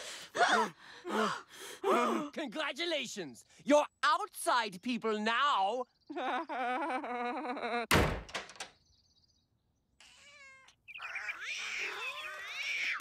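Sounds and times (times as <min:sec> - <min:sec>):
door slamming: 0:07.9 - 0:08.7
birds calling: 0:08.5 - 0:13.0
cats meowing: 0:10.0 - 0:13.0.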